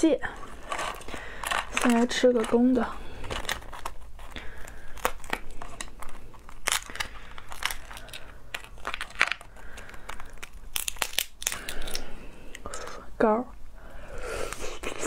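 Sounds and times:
crab shell cracking: 3.2s - 12.6s.

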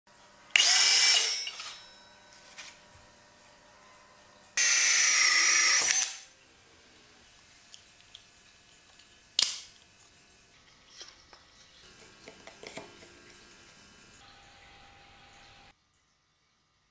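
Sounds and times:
power drill whine: 0.5s - 2.8s, 4.6s - 6.3s.

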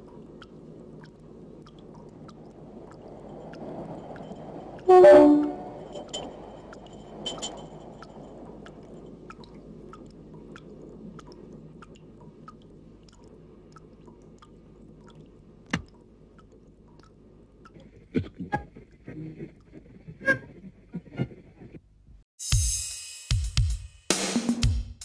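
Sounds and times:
low rumble: 0.0s - 12.5s
slow even ticking: 0.0s - 18.0s.

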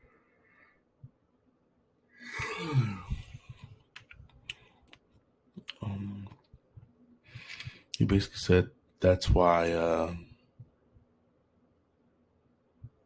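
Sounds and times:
man yawning: 2.2s - 3.3s.

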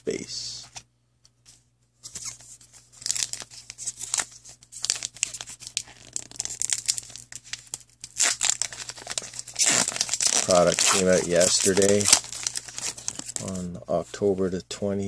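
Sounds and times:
foil wrapper crinkling and tearing: 2.2s - 13.6s.

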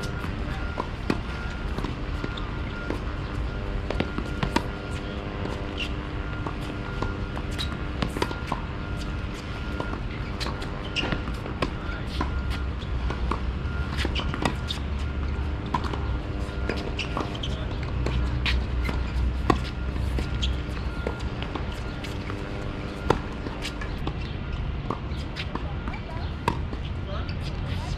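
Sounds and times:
balls bouncing on hard court: 0.0s - 26.8s
tennis balls struck by rackets: 0.0s - 26.8s
steady low rumble and hum: 0.0s - 27.9s.

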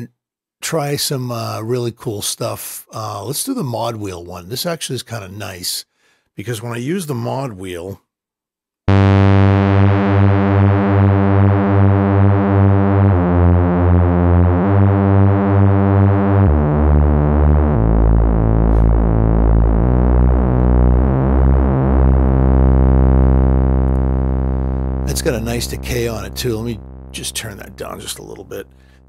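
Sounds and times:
wobbling deep synth bass notes: 8.9s - 29.0s.

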